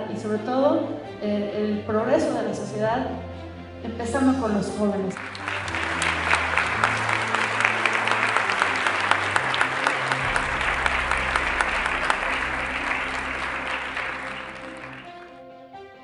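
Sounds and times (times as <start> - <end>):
soft background music: 0.0 - 16.0
audience applauding: 5.2 - 15.4.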